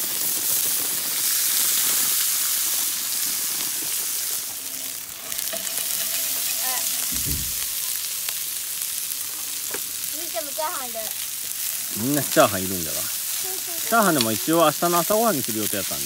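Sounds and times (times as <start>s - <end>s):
rice sizzling in frying pan: 0.0s - 16.0s
short dull thump: 7.1s - 7.7s.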